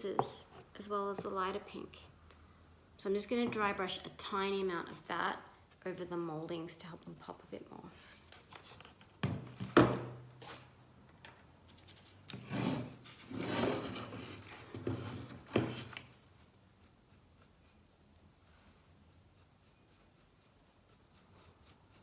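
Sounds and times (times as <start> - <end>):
paintbrush scrubbing wood: 19.1 - 22.0.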